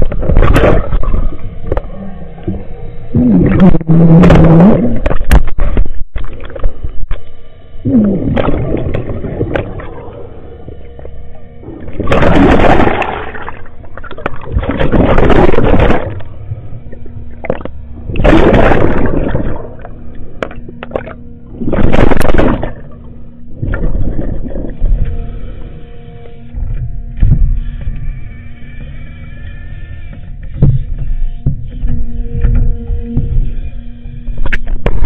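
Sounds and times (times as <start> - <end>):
churning water rushes: 7.9 - 25.7.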